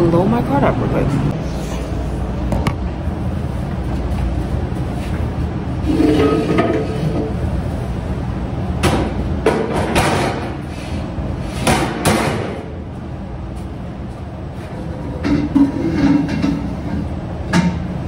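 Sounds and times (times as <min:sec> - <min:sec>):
steady low rumble: 0:00.0 - 0:05.9
metal pots and pans clanking: 0:05.9 - 0:07.3, 0:15.2 - 0:17.8.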